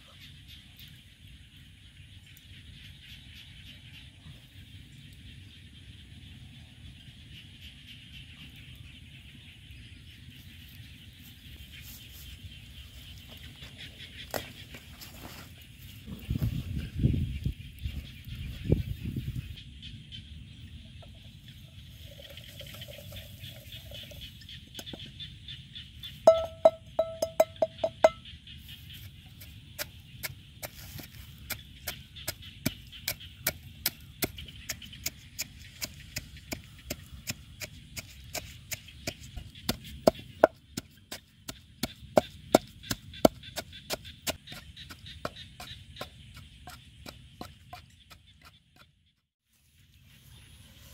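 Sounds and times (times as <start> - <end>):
pestle pounding in wooden mortar: 26.3 - 28.2, 29.8 - 48.9.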